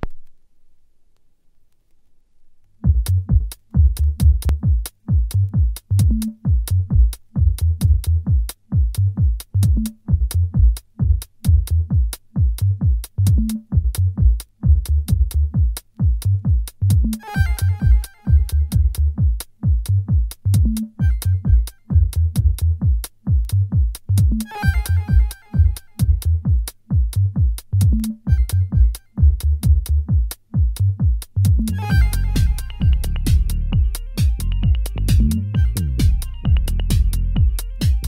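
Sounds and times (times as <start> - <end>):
drum-machine beat: 2.8 - 38.0
deep pulsing bass: 2.9 - 8.3, 12.7 - 15.6, 16.3 - 19.2, 19.8 - 22.9, 23.6 - 26.6, 27.2 - 30.1, 30.8 - 38.0
synth chord: 17.2 - 18.6, 24.5 - 25.8, 31.8 - 33.9.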